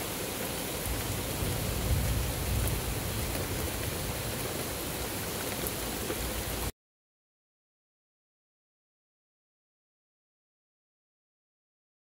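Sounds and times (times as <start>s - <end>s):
steady rain falling: 0.0s - 6.7s.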